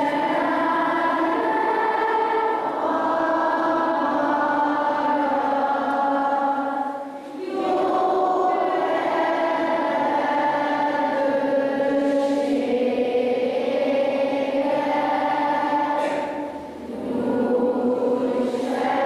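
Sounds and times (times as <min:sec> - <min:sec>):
children singing together: 0:00.0 - 0:19.0.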